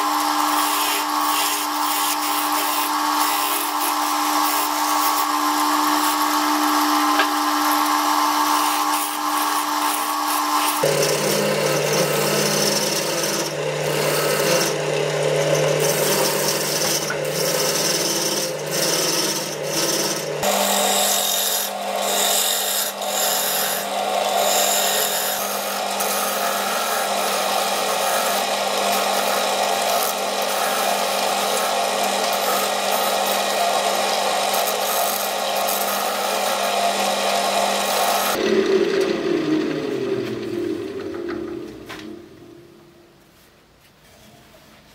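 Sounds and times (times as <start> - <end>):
gouge scraping spinning wood: 0.0 - 42.2
wood lathe motor humming: 0.0 - 42.7
lathe spinning down: 10.4 - 43.0.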